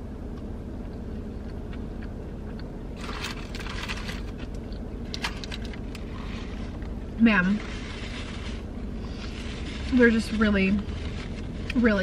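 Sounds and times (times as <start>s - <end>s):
low car cabin hum: 0.0s - 12.0s
chewing and food rustling: 0.8s - 12.0s.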